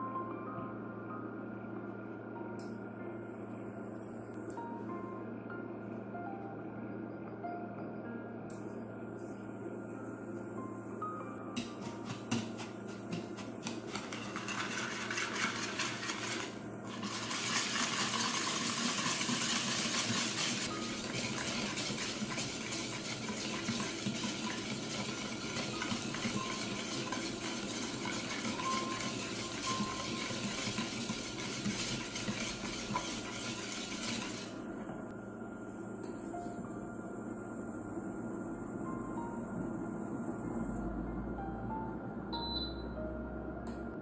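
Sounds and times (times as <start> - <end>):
whisk clicking against bowl: 11.7 - 34.5.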